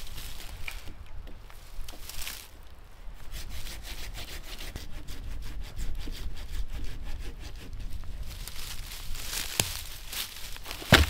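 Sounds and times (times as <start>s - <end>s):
hand saw cutting a log: 3.3s - 7.9s, 10.7s - 11.0s.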